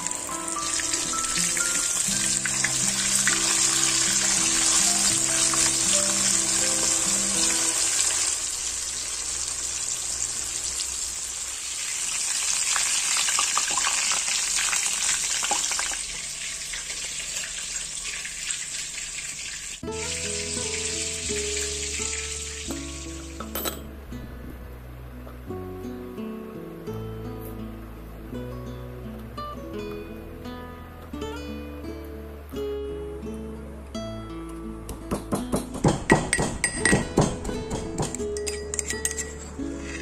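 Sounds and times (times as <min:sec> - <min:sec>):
background music: 0:00.0 - 0:08.4, 0:19.8 - 0:40.0
fish sizzling in hot oil: 0:00.0 - 0:23.4.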